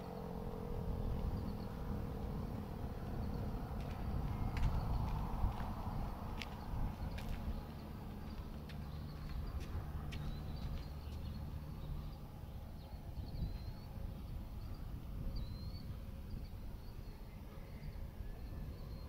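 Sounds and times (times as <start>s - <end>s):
wind rumble: 0.0s - 19.0s.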